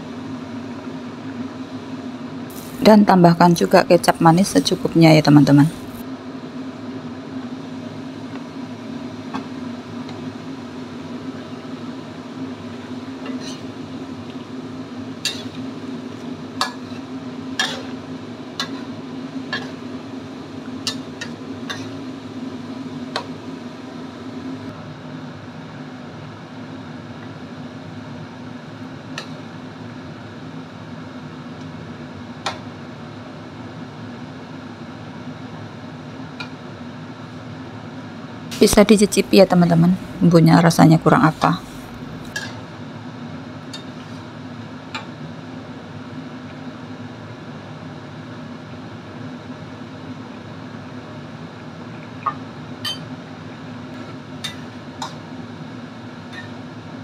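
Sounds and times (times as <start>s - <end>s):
steady low hum: 0.0s - 25.3s, 38.2s - 43.8s
metal spatula scraping a wok: 13.3s - 13.7s, 15.3s - 15.6s, 16.7s - 18.0s.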